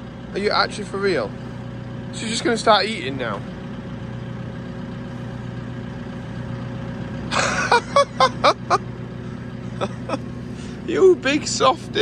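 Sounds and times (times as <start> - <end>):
telehandler engine idling: 0.0 - 12.0
person laughing: 7.3 - 8.9, 9.6 - 10.4.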